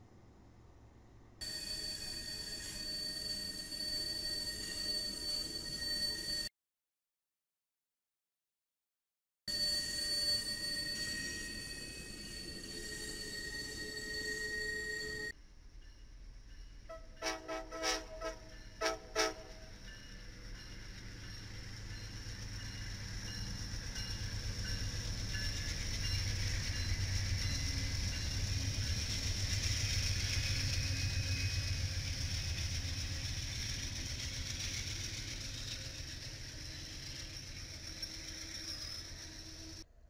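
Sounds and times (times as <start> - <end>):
train wheels on rails: 9.6 - 39.9
diesel locomotive engine rumble: 15.0 - 39.9.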